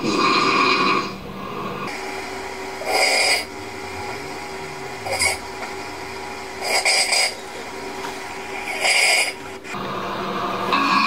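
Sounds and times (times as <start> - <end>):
person snoring: 2.8 - 5.4.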